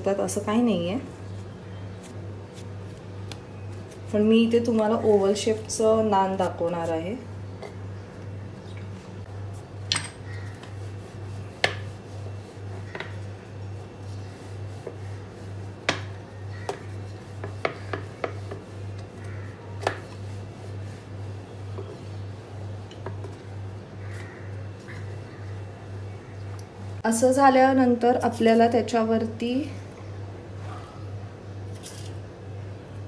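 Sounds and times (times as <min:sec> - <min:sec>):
rolling pin rubbing dough: 0:00.9 - 0:07.3, 0:10.3 - 0:25.6.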